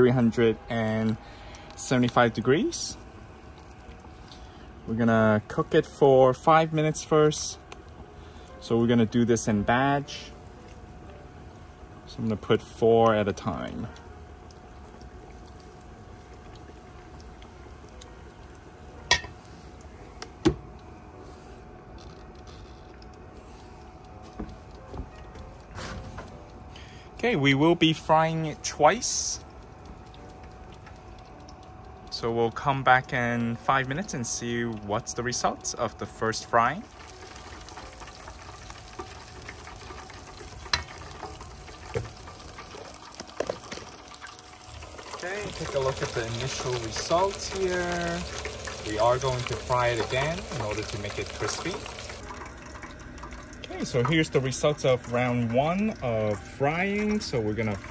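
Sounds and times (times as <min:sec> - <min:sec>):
hot oil bubbling and sizzling: 0:00.0 - 0:19.9, 0:26.7 - 0:57.9.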